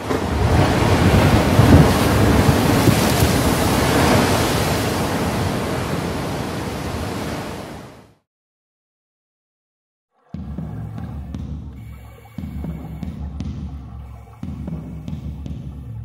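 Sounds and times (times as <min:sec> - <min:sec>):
rough sea rushing: 0:00.0 - 0:08.2
wind: 0:00.0 - 0:08.2.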